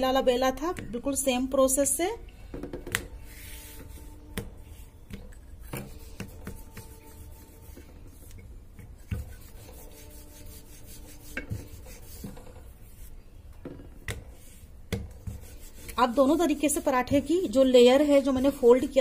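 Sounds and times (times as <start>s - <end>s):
rolling pin rubbing on dough: 3.2s - 13.2s, 14.1s - 19.0s
light knocks of rolling pin: 13.6s - 16.0s.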